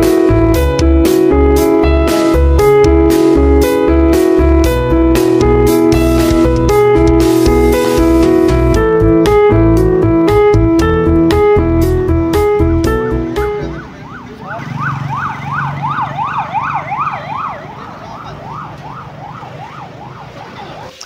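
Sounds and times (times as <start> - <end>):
rhythmic piano-like keyboard music: 0.0 - 20.9
ambulance siren yelping: 12.6 - 21.0.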